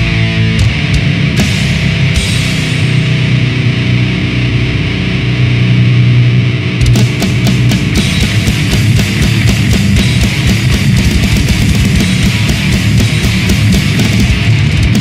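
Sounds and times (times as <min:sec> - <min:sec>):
bass guitar: 0:00.0 - 0:15.0
distorted electric guitar: 0:00.0 - 0:15.0
cymbal crash: 0:01.4 - 0:04.2, 0:06.9 - 0:15.0
fast drum hits: 0:06.8 - 0:15.0.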